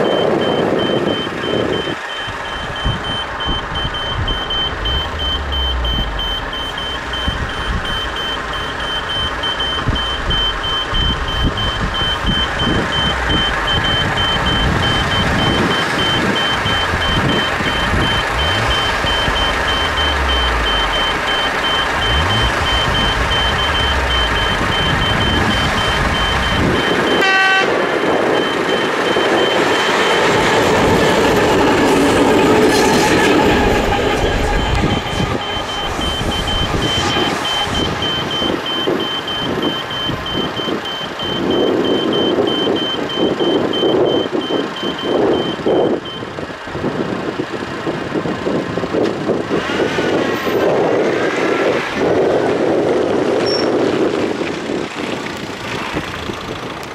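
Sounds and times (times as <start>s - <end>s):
level crossing signal beeping: 0.0s - 46.4s
diesel locomotive rumble: 0.0s - 56.9s
locomotive horn toot: 16.8s - 28.4s.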